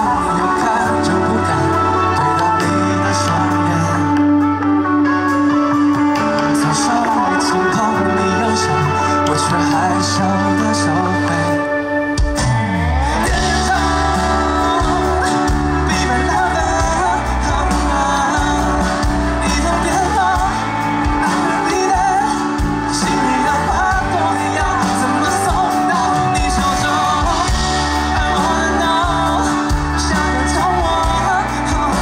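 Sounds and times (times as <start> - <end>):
live pop-rock band playing: 0.0 - 32.0
man singing lead vocals: 0.0 - 32.0.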